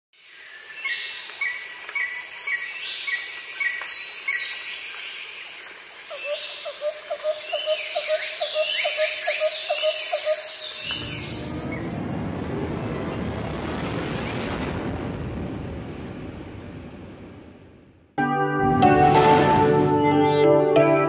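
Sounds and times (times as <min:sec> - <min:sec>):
high insect drone: 0:00.2 - 0:11.9
birds calling and chirping: 0:06.1 - 0:11.9.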